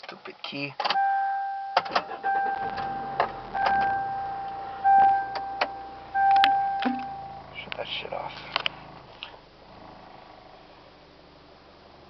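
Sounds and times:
dashboard warning chime: 1.0s - 7.5s.

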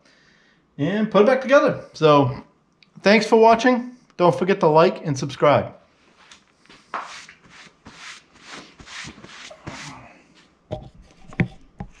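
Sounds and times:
rag swishing on workbench: 6.2s - 10.2s.

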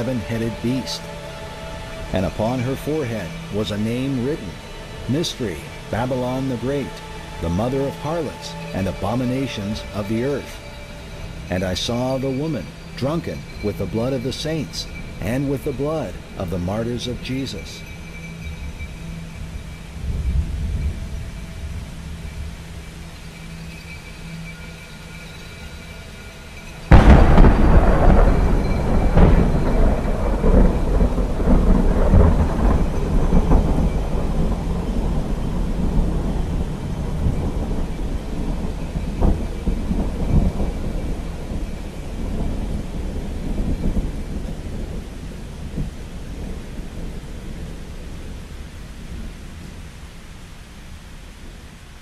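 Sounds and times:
thunder clap: 0.0s - 17.8s, 26.8s - 49.8s
rolling thunder rumbles: 0.0s - 25.7s, 26.5s - 50.0s.

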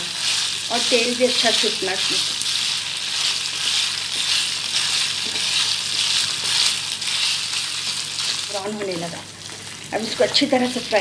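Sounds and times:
meat sizzling in hot oil: 0.0s - 11.0s
wooden spatula stirring: 0.1s - 11.0s.

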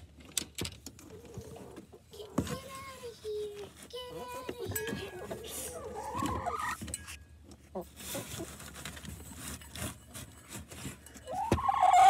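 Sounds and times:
hens rustling feathers: 1.0s - 6.8s, 7.6s - 12.0s
chicken loud rising call: 11.3s - 12.0s.

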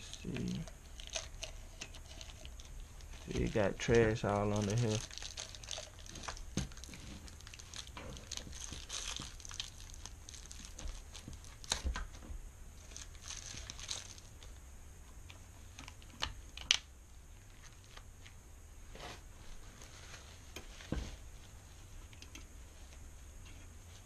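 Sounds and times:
newspaper crinkling and rustling: 0.0s - 12.2s, 12.8s - 14.5s.

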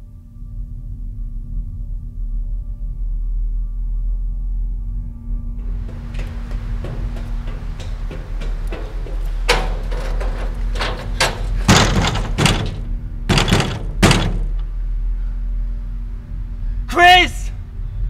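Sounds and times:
steady low hum: 0.1s - 16.9s
fist banging on metal door: 5.6s - 14.7s.

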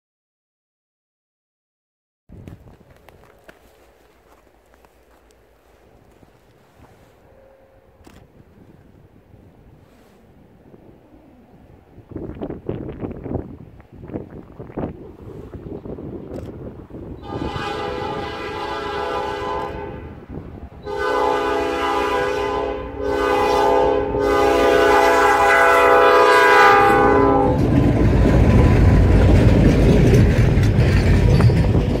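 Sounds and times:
locomotives rumbling past: 2.4s - 32.0s
locomotive air horn blasts: 17.2s - 27.7s.

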